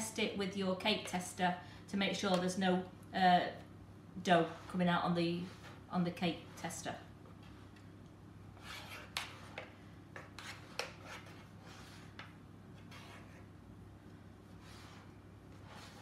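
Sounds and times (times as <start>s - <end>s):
metal knife scraping cake mixture: 4.2s - 6.8s, 8.6s - 13.6s, 14.6s - 16.0s.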